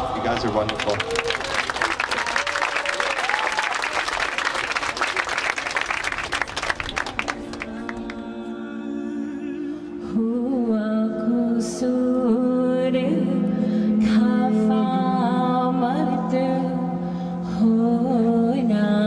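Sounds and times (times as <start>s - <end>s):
wordless singing voice: 0.0s - 1.2s, 7.4s - 19.0s
crowd clapping: 0.0s - 8.2s.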